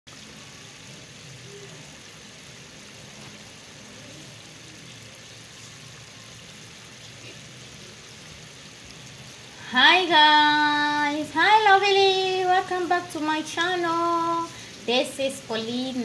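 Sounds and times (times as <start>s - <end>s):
stew bubbling in a pot: 0.1s - 9.9s
faint voices: 0.8s - 8.6s.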